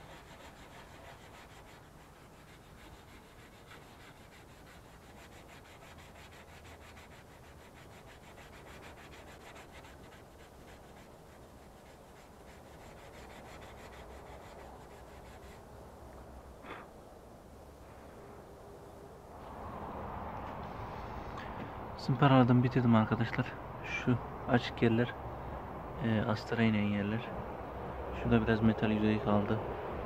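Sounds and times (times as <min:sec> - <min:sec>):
sandpaper rubbing: 0:00.0 - 0:15.6.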